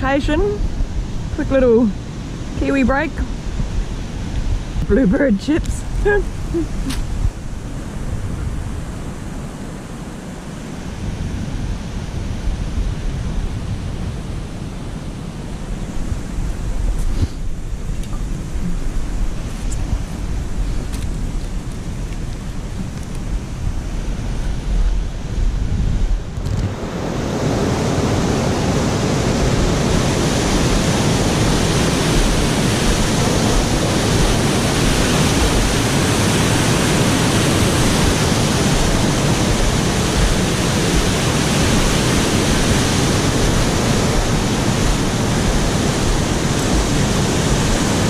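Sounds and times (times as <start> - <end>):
low wind rumble: 0.0 - 48.0
whitewater rushing through weir: 26.3 - 48.0.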